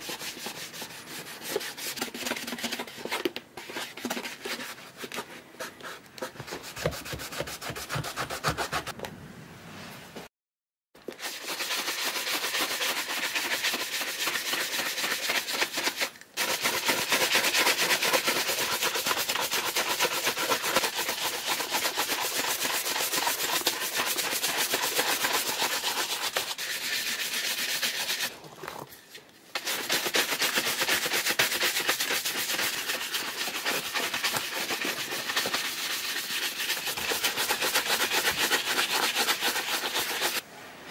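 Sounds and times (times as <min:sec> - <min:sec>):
shoe brush scrubbing leather: 0:11.1 - 0:28.3, 0:29.5 - 0:40.4.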